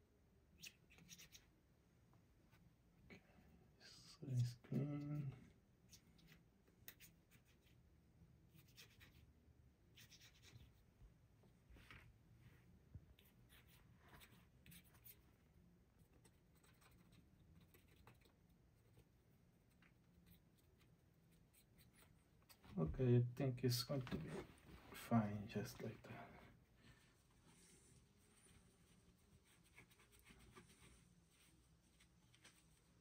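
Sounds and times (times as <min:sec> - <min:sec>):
faint scratching and rubbing: 0:00.6 - 0:01.6, 0:08.5 - 0:33.0.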